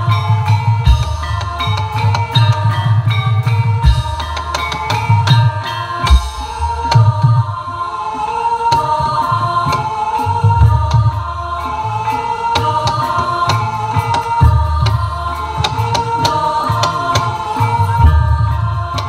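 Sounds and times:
gamelan-style ensemble: 0:00.0 - 0:19.0
voices singing: 0:00.0 - 0:19.0.

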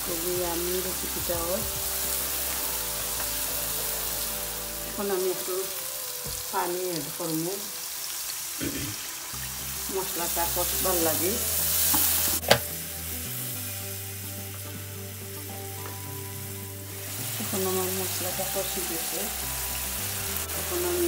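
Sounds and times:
food sizzling in a frying pan: 0:00.0 - 0:21.0.

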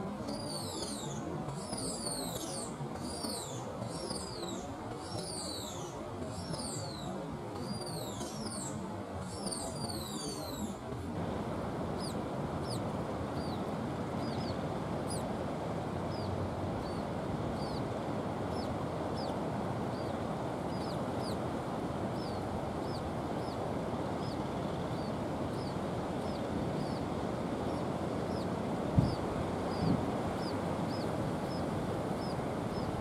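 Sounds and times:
low rushing background: 0:07.2 - 0:33.0.

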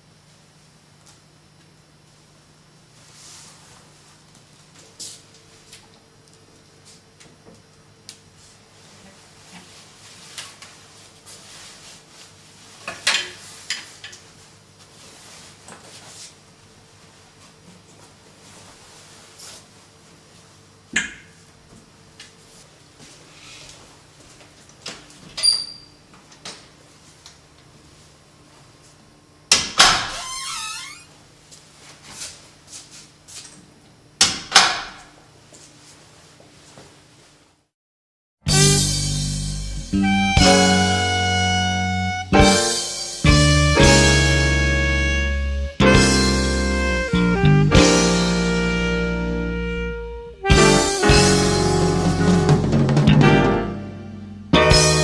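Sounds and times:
door squeaking: 0:29.8 - 0:31.2.

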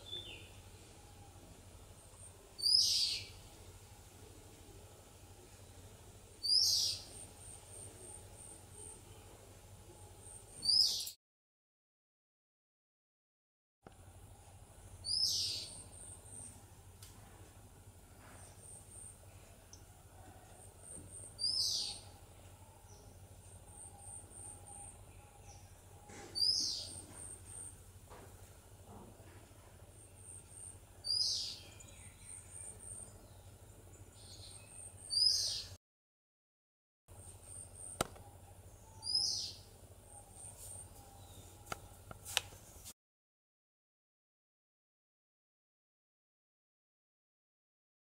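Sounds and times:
bird singing: 0:00.0 - 0:03.7, 0:05.5 - 0:11.2, 0:15.0 - 0:16.6, 0:18.4 - 0:27.8, 0:30.0 - 0:35.8, 0:37.4 - 0:42.0
low steady hum: 0:00.0 - 0:10.6, 0:13.9 - 0:35.7.

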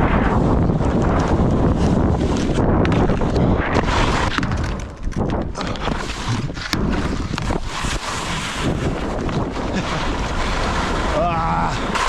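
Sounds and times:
wind rushing over microphone: 0:00.0 - 0:12.0
skis scraping on metal tube: 0:00.4 - 0:12.0
skis running on packed snow: 0:05.6 - 0:12.0.

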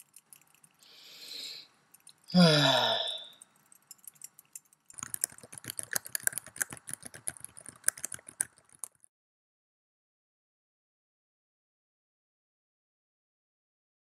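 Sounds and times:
typing on computer keyboard: 0:00.0 - 0:00.9, 0:01.9 - 0:02.3, 0:03.3 - 0:09.1.

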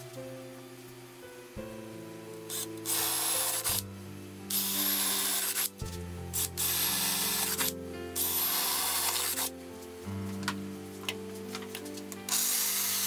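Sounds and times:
cordless drill boring into wood: 0:02.8 - 0:03.8, 0:04.5 - 0:05.7, 0:06.5 - 0:09.5, 0:12.3 - 0:13.0.

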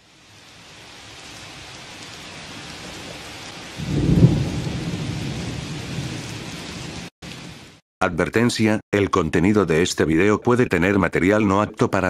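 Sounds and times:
steady rain hiss: 0:00.0 - 0:07.8
thunder rumbling: 0:02.3 - 0:07.7.

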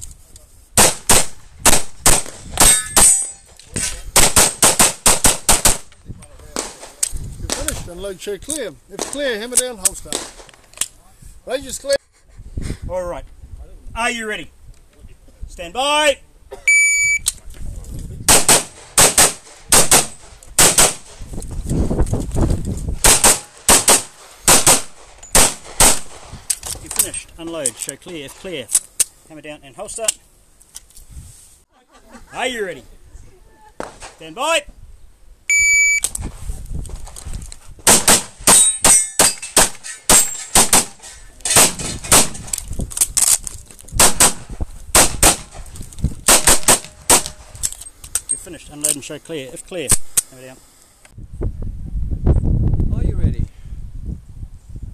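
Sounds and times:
handgun shots in pairs: 0:00.8 - 0:03.4, 0:04.2 - 0:05.9, 0:18.3 - 0:21.2, 0:23.0 - 0:26.3, 0:37.8 - 0:42.5, 0:44.0 - 0:45.6, 0:46.3 - 0:47.5.

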